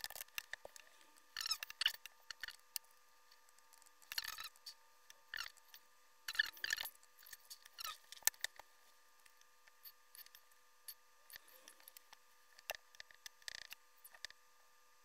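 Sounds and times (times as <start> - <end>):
faint electrical whine: 0.0 - 15.0.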